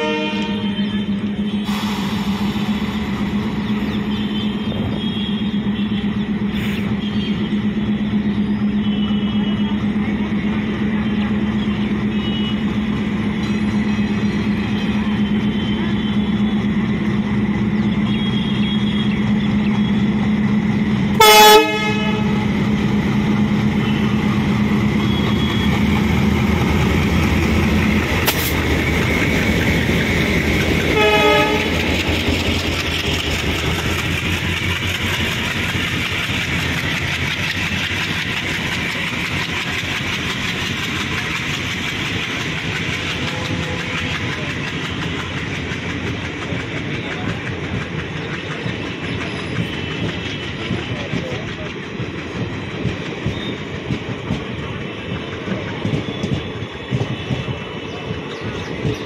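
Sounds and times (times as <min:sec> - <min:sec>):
train horn blasts: 0:00.0 - 0:01.7, 0:18.0 - 0:19.5, 0:21.1 - 0:22.7, 0:30.8 - 0:32.0
coach wheels rumbling on rails: 0:00.0 - 0:59.0
diesel locomotive engine running: 0:00.0 - 0:59.0.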